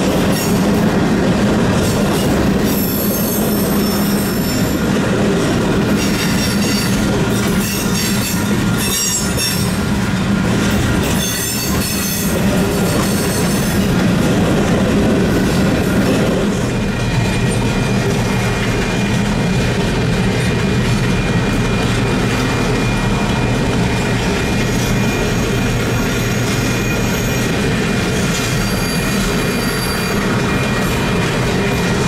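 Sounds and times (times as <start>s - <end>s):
freight train wheels rumbling: 0.0s - 32.0s
wheel squeal: 24.7s - 27.7s, 28.3s - 31.0s.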